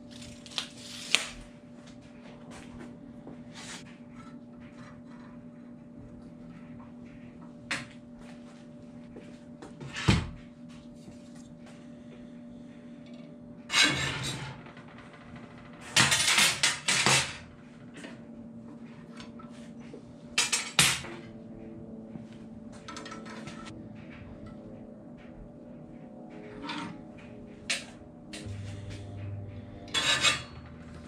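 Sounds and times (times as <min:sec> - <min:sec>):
steady low hum: 0:00.0 - 0:31.0
metal scraping and rattling: 0:13.7 - 0:18.1, 0:22.8 - 0:24.6, 0:26.3 - 0:31.0
metal rod clanking: 0:29.9 - 0:31.0.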